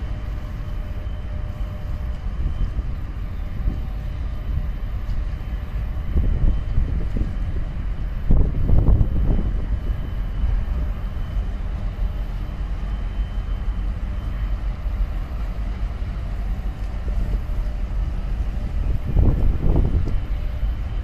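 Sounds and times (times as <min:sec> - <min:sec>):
boat engines rumbling: 0:00.0 - 0:21.0
wind buffeting microphone: 0:01.3 - 0:11.8, 0:16.2 - 0:21.0.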